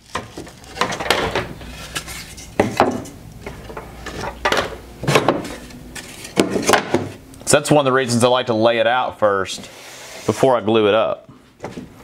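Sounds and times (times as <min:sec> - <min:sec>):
boards rubbing together: 0:09.5 - 0:10.6.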